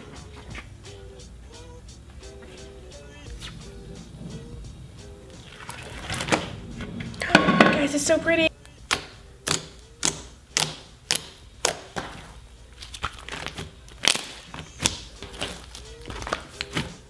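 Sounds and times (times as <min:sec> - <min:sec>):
slime clicking and popping: 0:08.9 - 0:12.1, 0:12.8 - 0:16.8.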